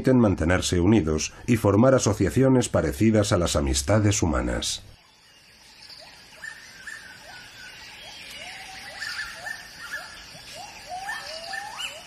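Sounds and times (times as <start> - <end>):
whistle-like animal calls: 8.4 - 12.0.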